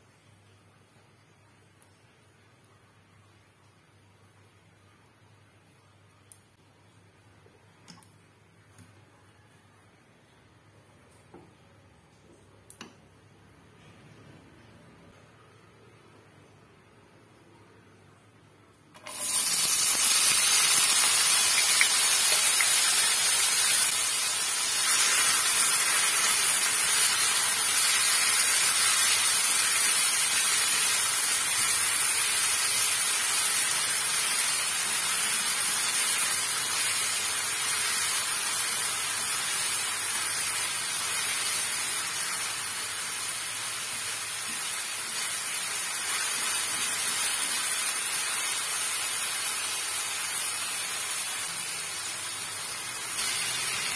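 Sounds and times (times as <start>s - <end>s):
potatoes sizzling in hot oil: 19.0s - 53.9s.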